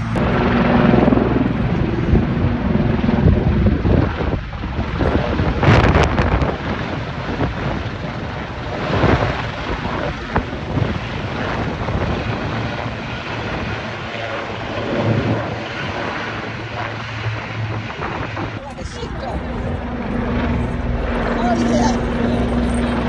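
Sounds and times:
helicopter rotor hum: 0.0 - 23.0
wind on microphone: 0.0 - 23.0.

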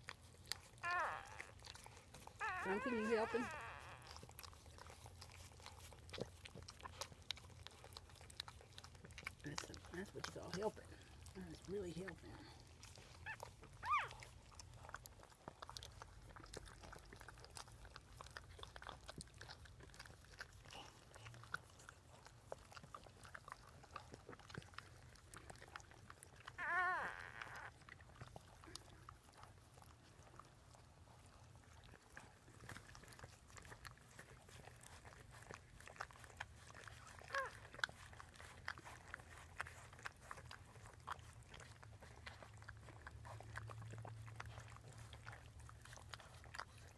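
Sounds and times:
dogs licking puppies: 0.0 - 46.9
puppy squealing: 0.7 - 4.3, 13.2 - 14.3, 26.5 - 27.8, 37.1 - 37.6.

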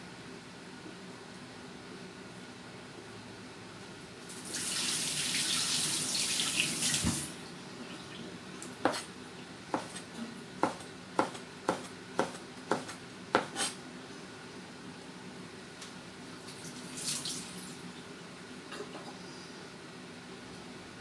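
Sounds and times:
tap running: 6.9 - 7.3
cleaver chopping on plastic board: 9.7 - 10.0, 10.6 - 13.7.

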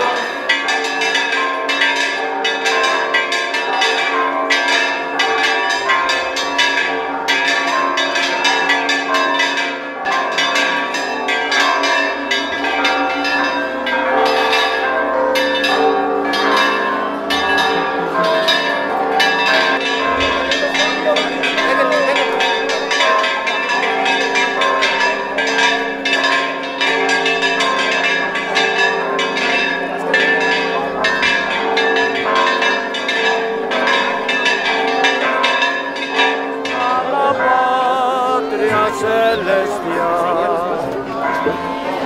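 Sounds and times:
church bells ringing a peal: 0.0 - 42.0.

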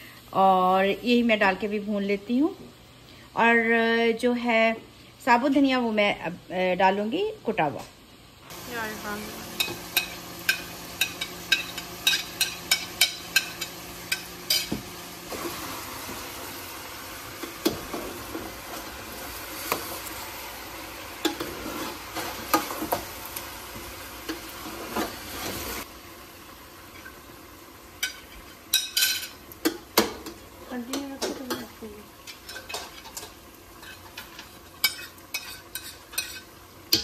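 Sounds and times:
spices sizzling in a pan: 0.0 - 37.0
metal spoon stirring: 32.4 - 37.0.

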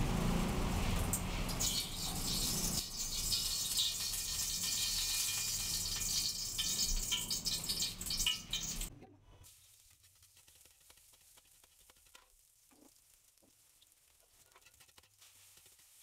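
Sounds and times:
onion sizzling in oil: 0.0 - 16.0
oil pouring into a wok: 0.7 - 8.9.

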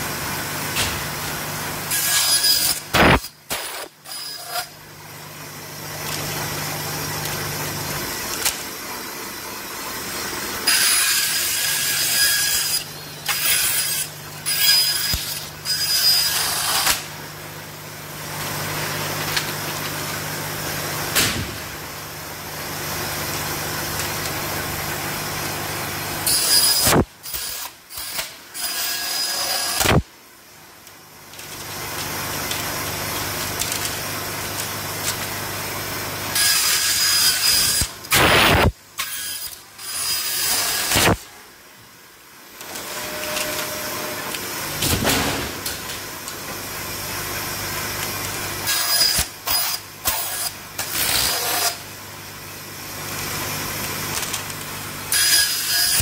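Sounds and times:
band saw humming: 0.0 - 17.4
saw cutting plastic hissing: 1.9 - 4.8, 36.3 - 41.2.

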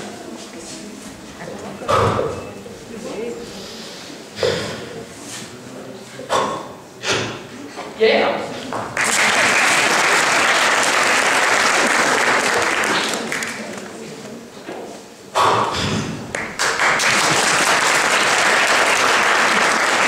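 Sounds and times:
audience applauding: 9.0 - 14.0, 16.3 - 20.0.

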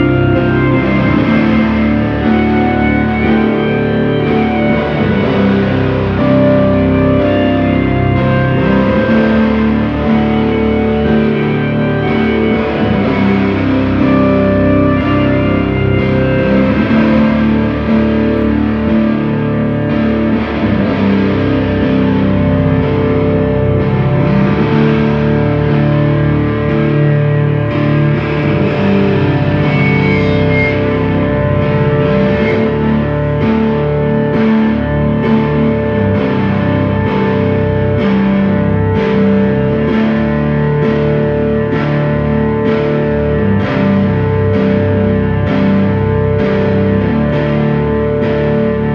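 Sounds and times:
distorted electric guitar drone: 0.0 - 48.9
keyboard sustained notes: 0.0 - 48.9.

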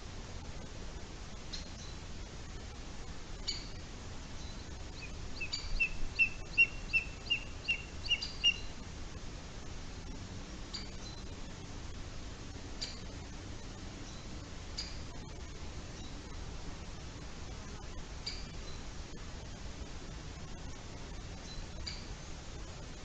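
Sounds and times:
bird chirping: 3.4 - 3.8, 4.4 - 8.7, 12.8 - 13.1, 14.0 - 15.0, 18.2 - 18.8, 21.4 - 22.1.

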